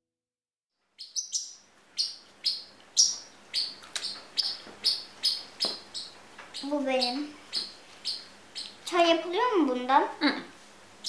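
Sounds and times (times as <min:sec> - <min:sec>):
bird chirping: 0:00.8 - 0:09.4.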